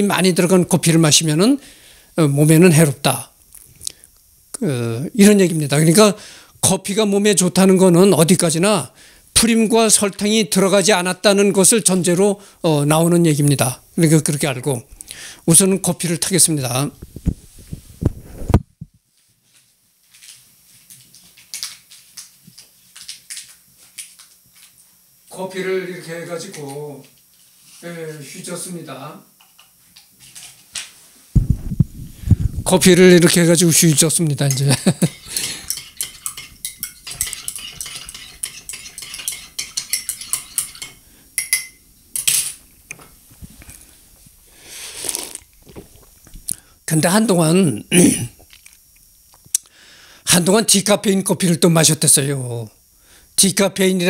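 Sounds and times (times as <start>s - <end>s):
steady low hum: 0.0s - 19.0s, 31.2s - 54.0s
faint scratches and rustles: 16.9s - 23.1s
spoon clinking in ceramic mug: 34.5s - 41.8s
person sipping from mug: 44.7s - 46.6s.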